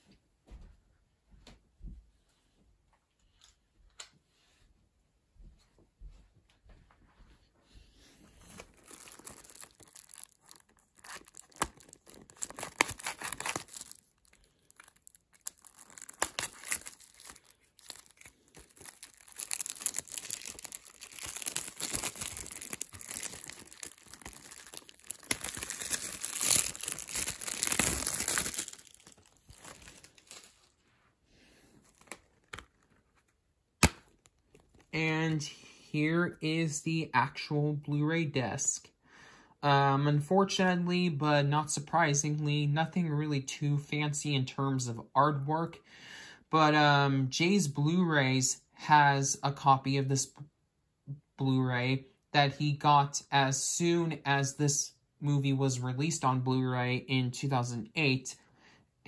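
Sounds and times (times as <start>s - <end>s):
plastic shrink-wrap tearing: 8.4s - 30.8s, 31.8s - 33.2s, 33.8s - 35.0s.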